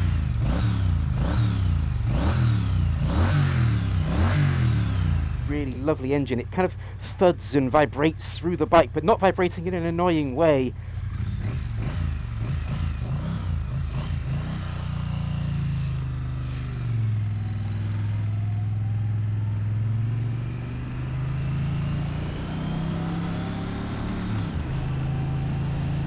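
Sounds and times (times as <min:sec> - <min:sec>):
motorcycle engine pulling away: 0:10.8 - 0:26.0.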